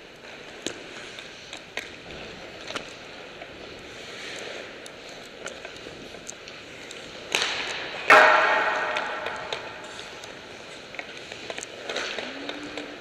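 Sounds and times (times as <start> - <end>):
hockey stick tapping puck: 4.2 - 13.0
sharp ringing impact echoing: 8.1 - 10.5.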